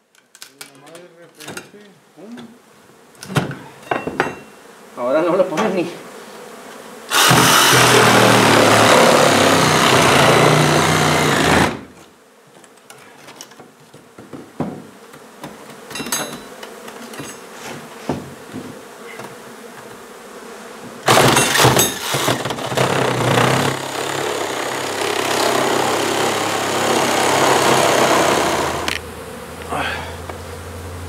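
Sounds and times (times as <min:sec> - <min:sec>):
bees buzzing: 0:02.6 - 0:12.5, 0:14.1 - 0:31.0
cordless power tool running: 0:07.1 - 0:11.9, 0:21.1 - 0:29.1
hammer knocks on floorboards: 0:14.2 - 0:15.6, 0:18.0 - 0:18.8.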